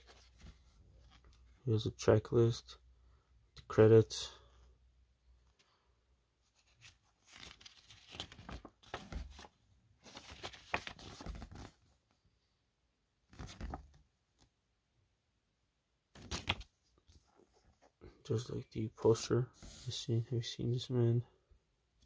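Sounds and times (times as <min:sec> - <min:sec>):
paper pages rustling: 0:00.0 - 0:01.5, 0:06.5 - 0:12.0, 0:13.3 - 0:14.0, 0:16.2 - 0:17.9.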